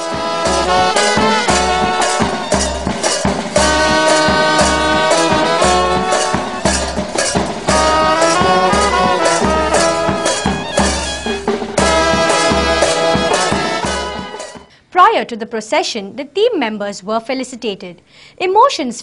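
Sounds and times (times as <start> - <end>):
brass instruments playing a tune: 0.0 - 14.7
marching drums: 0.0 - 14.7.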